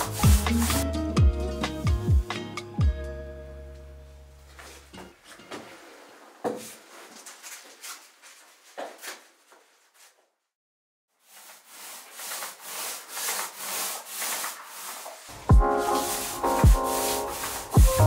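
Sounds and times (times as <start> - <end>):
paint roller rubbing on wall: 0.0 - 0.8, 11.1 - 18.0.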